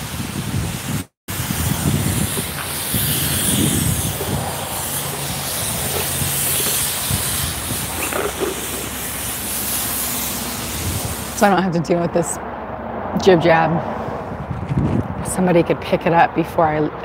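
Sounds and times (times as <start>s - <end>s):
wind buffeting microphone: 0.0s - 9.5s, 10.6s - 17.0s
steady hiss: 1.3s - 11.5s.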